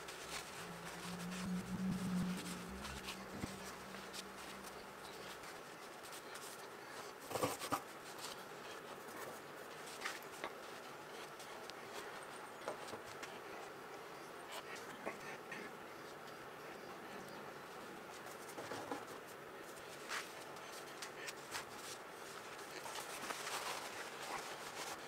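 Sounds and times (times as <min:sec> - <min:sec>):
low steady hum: 0:00.0 - 0:07.0.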